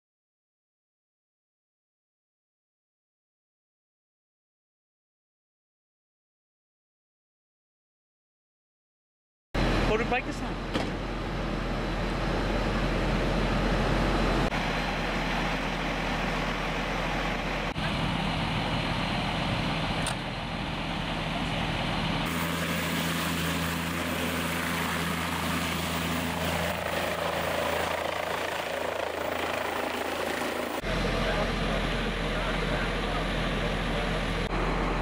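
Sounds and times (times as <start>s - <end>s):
helicopter turbine and rotor hum: 9.6s - 35.0s
outdoor rumble: 9.6s - 35.0s.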